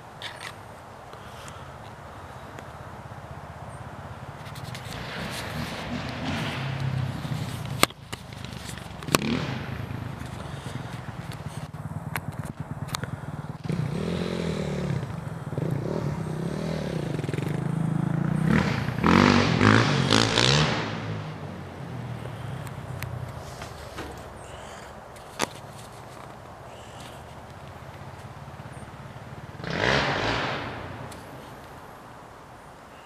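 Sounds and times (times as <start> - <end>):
distant dirt bike engine revving: 4.6 - 24.8, 27.8 - 31.7.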